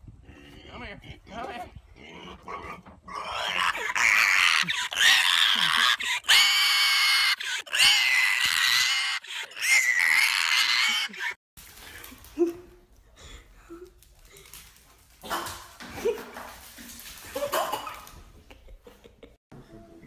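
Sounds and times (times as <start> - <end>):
pig squealing: 2.0 - 11.4.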